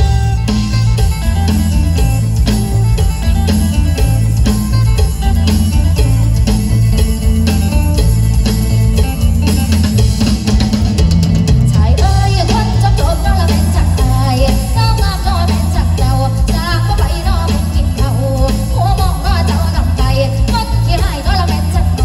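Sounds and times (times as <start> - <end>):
drum run: 0.0 - 22.0
live band music: 0.0 - 22.0
plucked-string lead: 0.0 - 22.0.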